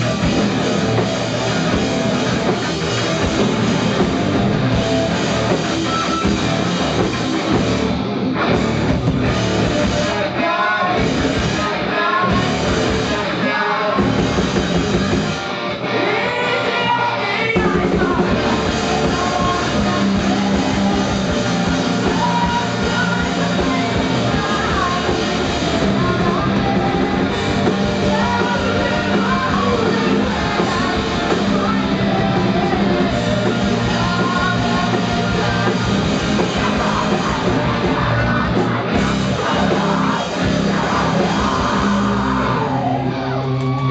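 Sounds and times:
drums: 0:00.0 - 0:43.9
electric guitars: 0:00.0 - 0:43.9
person singing: 0:09.8 - 0:14.3, 0:15.8 - 0:43.9.

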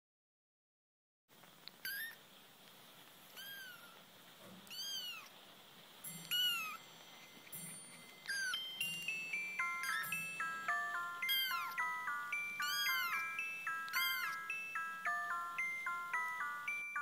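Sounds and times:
kittens mewing: 0:11.2 - 0:11.9, 0:12.6 - 0:13.3, 0:13.9 - 0:14.5.

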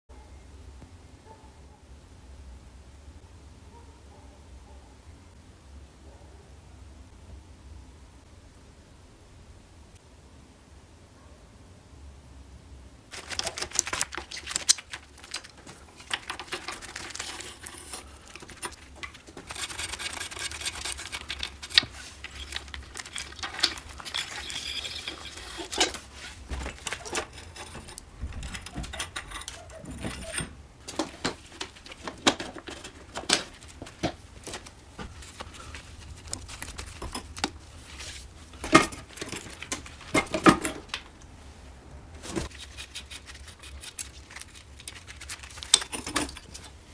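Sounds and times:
metal parts and tools clattering: 0:13.1 - 0:41.1, 0:44.2 - 0:46.8.

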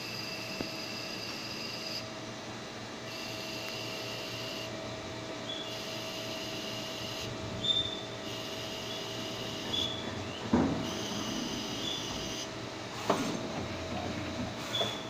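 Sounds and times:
high thin machine whine: 0:00.0 - 0:15.0
lathe machine hum: 0:00.0 - 0:15.0
sharp metallic clunks: 0:09.5 - 0:15.0.

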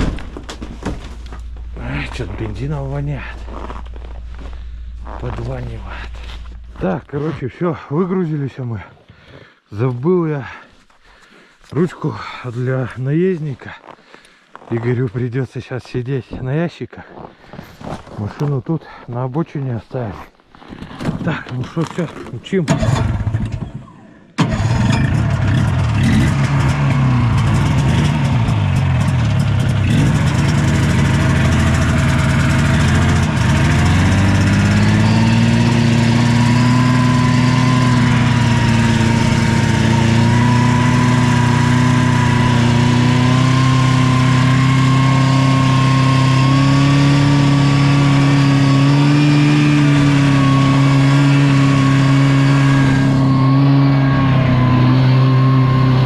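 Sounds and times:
snowmobile engine running: 0:00.0 - 0:08.4, 0:22.7 - 0:23.8, 0:24.4 - 0:56.0.

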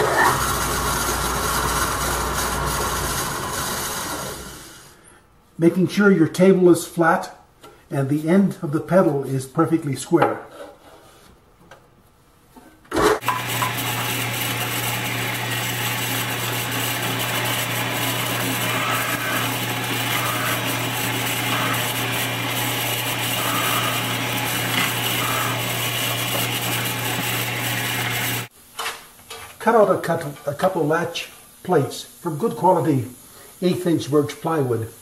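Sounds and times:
drill bit boring into wood: 0:13.2 - 0:28.5
drill press motor humming: 0:13.2 - 0:28.5.

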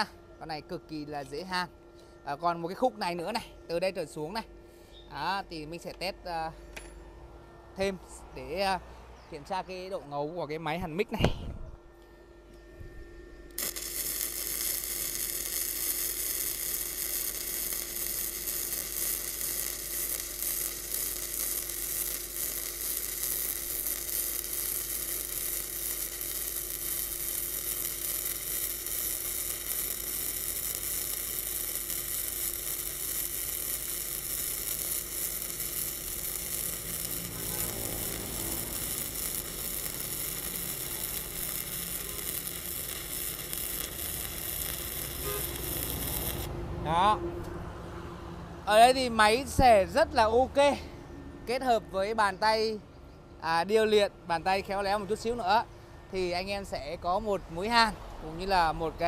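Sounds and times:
faint steady hum: 0:00.0 - 0:46.5
welding arc crackling sizzle: 0:13.5 - 0:47.5, 0:48.7 - 0:50.8.

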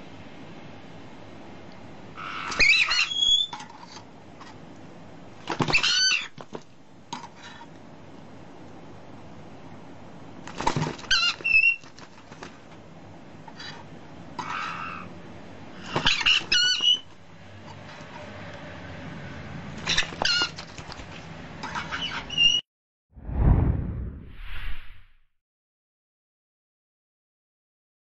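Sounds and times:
parrots calling: 0:02.2 - 0:03.5, 0:05.6 - 0:06.4, 0:11.0 - 0:11.9, 0:14.4 - 0:15.2, 0:15.8 - 0:17.2, 0:19.8 - 0:20.7.

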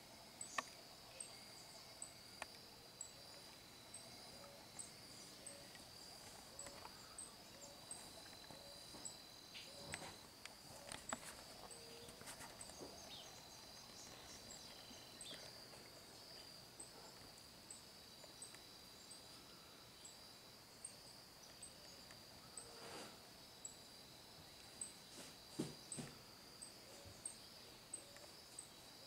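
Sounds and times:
faint ticks: 0:02.4 - 0:08.7.

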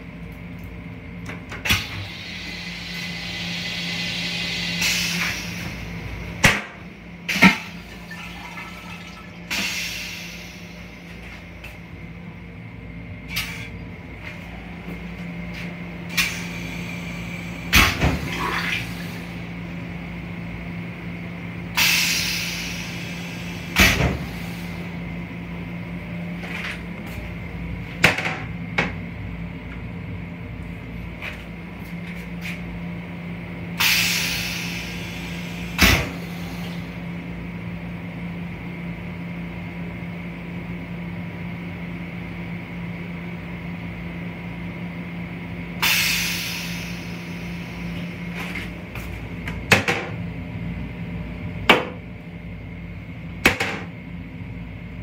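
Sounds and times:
rail car hum: 0:00.0 - 0:55.0
toilet flushing: 0:01.6 - 0:11.7, 0:15.5 - 0:20.0, 0:33.8 - 0:37.2, 0:45.8 - 0:48.7.

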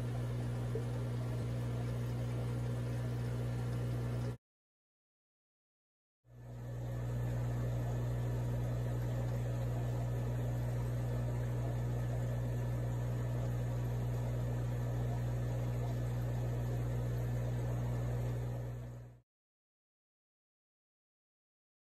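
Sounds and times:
low electrical hum: 0:00.0 - 0:04.4, 0:06.3 - 0:19.2.

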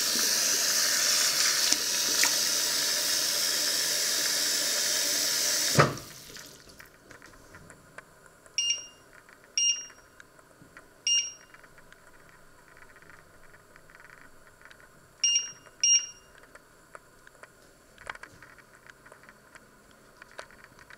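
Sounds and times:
short high-pitched beeps: 0:08.6 - 0:10.1, 0:11.1 - 0:11.6, 0:15.2 - 0:16.4.

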